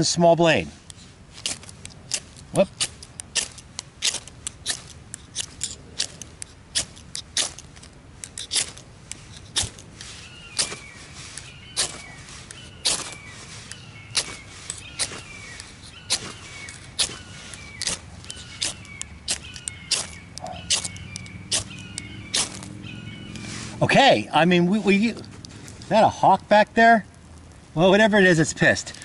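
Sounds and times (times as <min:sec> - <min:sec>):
knife scraping ferro rod: 0:00.8 - 0:22.7
bird calling: 0:01.0 - 0:26.3.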